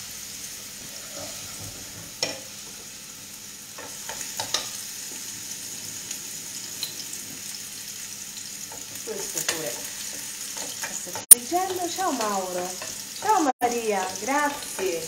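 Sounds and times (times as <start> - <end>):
oil sizzling in pans: 0.0 - 15.0.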